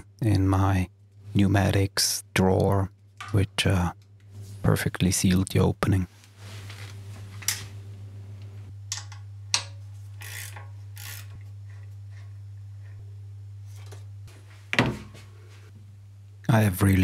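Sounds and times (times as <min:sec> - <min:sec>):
steady low hum: 0:00.0 - 0:17.0
ratcheting wrench clicking: 0:08.9 - 0:11.4.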